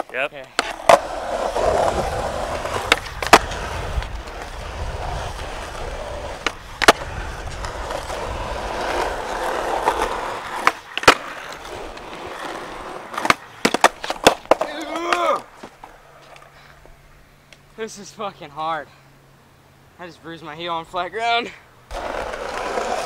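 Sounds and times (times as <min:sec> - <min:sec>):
skateboard wheels rolling on asphalt: 0:00.0 - 0:17.6, 0:21.2 - 0:23.0
skateboard tail snapping and landing: 0:02.6 - 0:04.1, 0:06.4 - 0:07.7, 0:09.8 - 0:12.0, 0:13.1 - 0:15.8.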